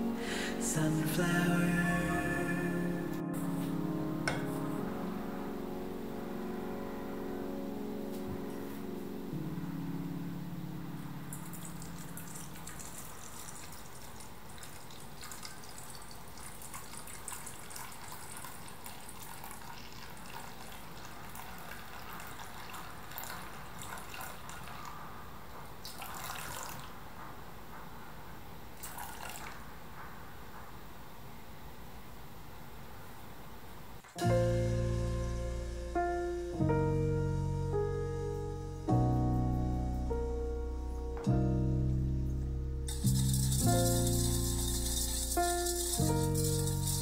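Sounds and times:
coffee pouring into steel bowl: 11.7s - 24.8s, 25.9s - 26.9s, 28.8s - 29.5s, 42.9s - 47.0s.

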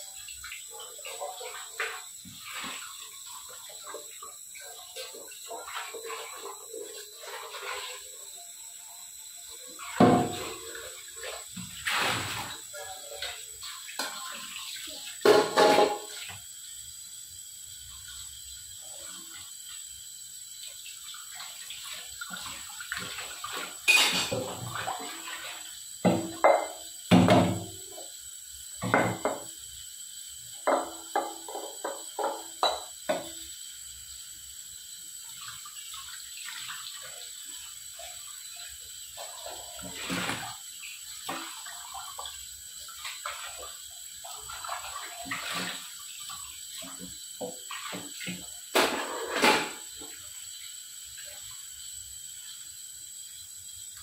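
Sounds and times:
tap water running into sink: 0.0s - 54.0s
metal pot clanking against sink: 10.0s - 10.6s, 15.2s - 16.2s, 23.8s - 24.8s, 26.0s - 27.8s, 28.8s - 29.5s, 30.6s - 33.3s, 47.4s - 49.9s.

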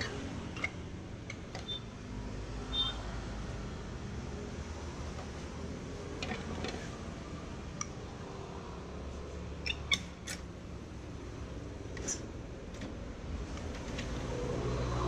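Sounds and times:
plastic clicks and squeaks: 0.0s - 1.9s, 6.2s - 6.9s, 9.6s - 10.5s.

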